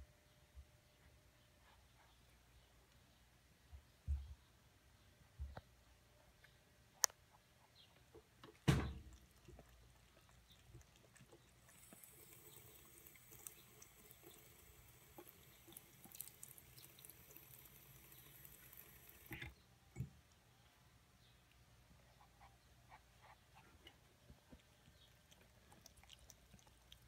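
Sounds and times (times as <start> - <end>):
faucet trickling into basin: 11.4 - 19.5.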